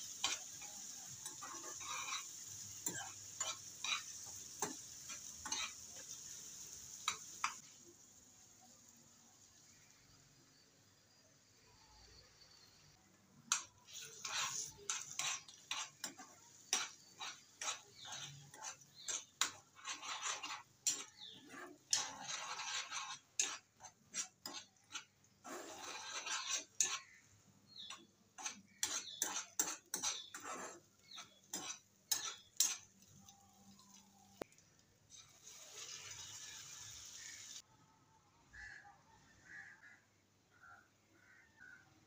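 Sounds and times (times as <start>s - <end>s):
spatula scraping a frying pan: 0.0s - 7.7s, 13.4s - 37.6s.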